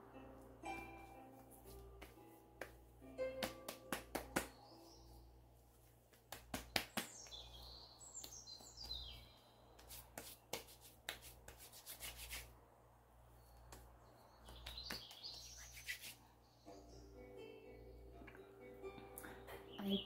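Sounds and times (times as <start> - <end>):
hands patting and tapping skin: 0.7 - 12.5, 13.6 - 16.2
high falling bird-like chirps: 13.4 - 16.8.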